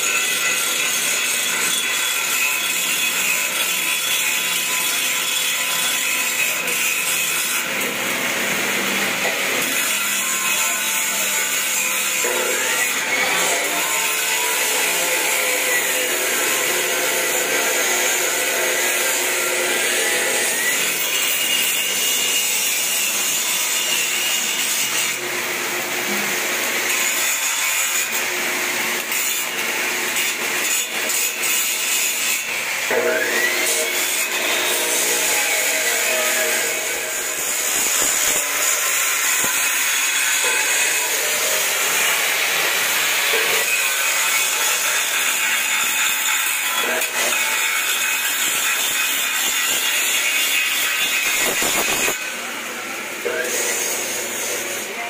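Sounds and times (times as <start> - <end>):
welding arc hissing crackle: 32.9 - 52.2.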